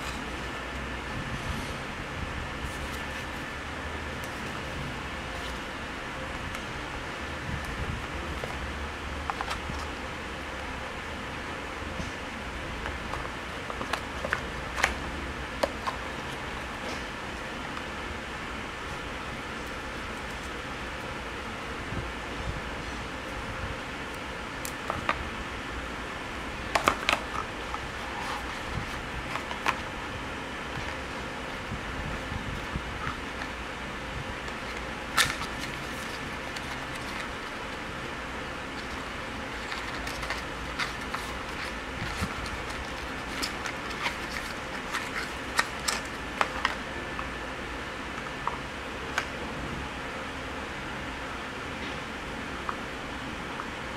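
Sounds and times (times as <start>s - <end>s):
steady background noise: 0.0s - 53.9s
cardboard and plastic crinkling: 34.4s - 46.9s.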